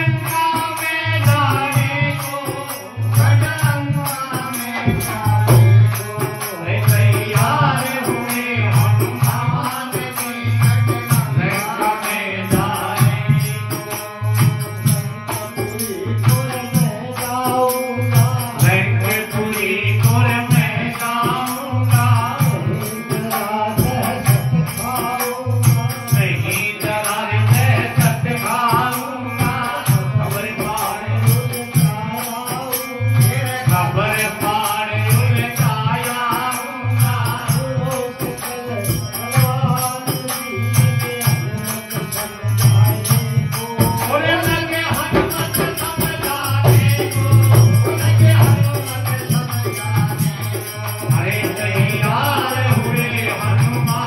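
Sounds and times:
person singing devotional song: 0:00.0 - 0:54.0
rattling shaker percussion: 0:00.0 - 0:54.0
steady drum beat: 0:00.0 - 0:54.0.

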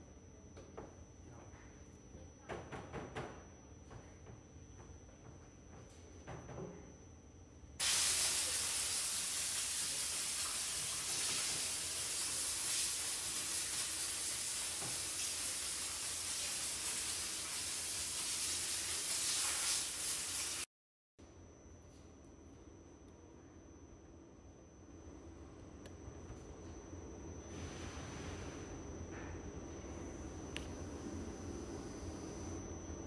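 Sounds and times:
loud steady hiss: 0:07.8 - 0:20.7.

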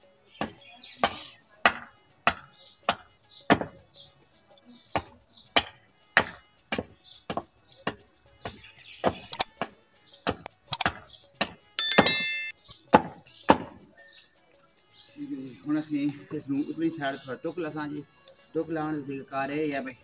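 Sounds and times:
hatchet chopping wood: 0:00.4 - 0:03.8, 0:05.0 - 0:09.2.

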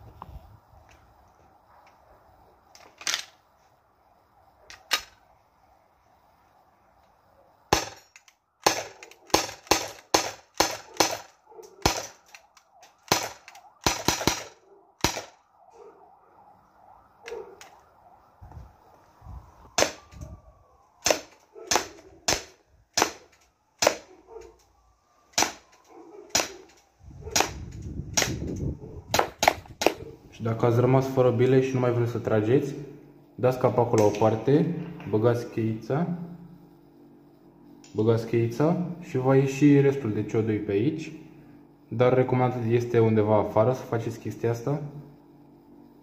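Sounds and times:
airsoft pistol shots: 0:07.7 - 0:15.4, 0:19.8 - 0:20.2, 0:21.0 - 0:24.1, 0:25.3 - 0:25.7, 0:26.3 - 0:30.0.

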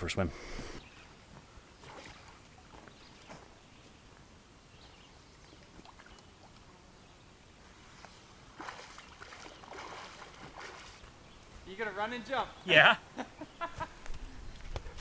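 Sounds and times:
small waves lapping: 0:00.8 - 0:07.0, 0:07.6 - 0:11.4.

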